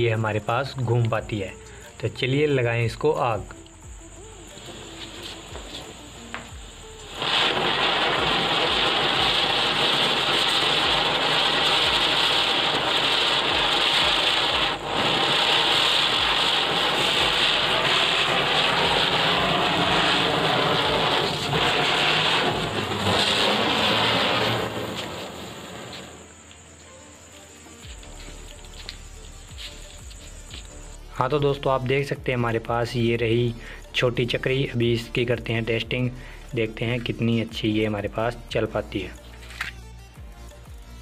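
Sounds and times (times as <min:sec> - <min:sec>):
firework fizzing hiss: 0:04.1 - 0:32.2.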